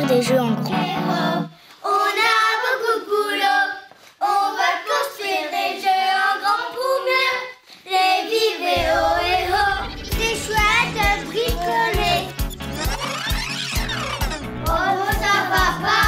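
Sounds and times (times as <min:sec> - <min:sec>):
children singing: 0:00.3 - 0:16.0
low music beat: 0:08.8 - 0:13.0.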